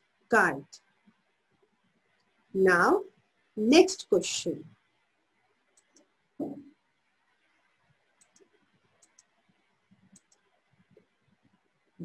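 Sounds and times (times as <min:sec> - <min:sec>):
computer mouse clicking: 0:05.7 - 0:06.1, 0:08.1 - 0:11.1.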